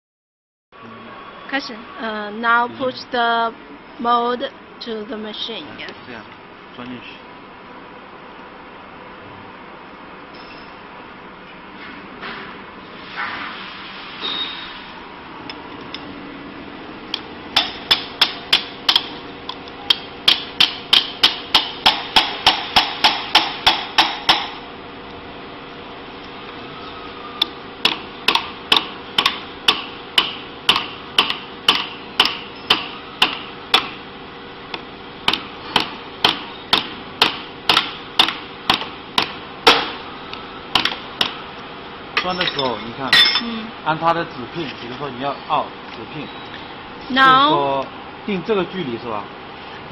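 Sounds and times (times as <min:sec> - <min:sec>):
hammer striking metal: 0:17.6 - 0:19.1, 0:19.9 - 0:24.6, 0:27.8 - 0:34.0, 0:35.3 - 0:40.0.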